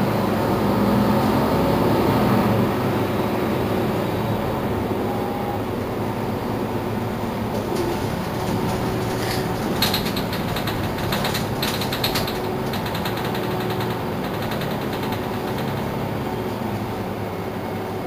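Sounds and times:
bus engine and road rumble: 0:00.0 - 0:18.0
rapid rattling clicks: 0:07.3 - 0:16.7.

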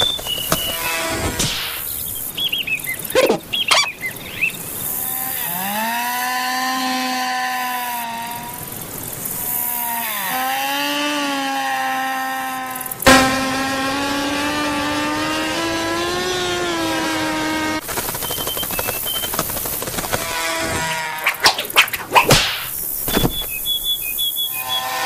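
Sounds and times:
cartoon insect buzzing whine: 0:00.0 - 0:02.1, 0:04.7 - 0:25.0
short warbling chirps: 0:03.1 - 0:04.1.

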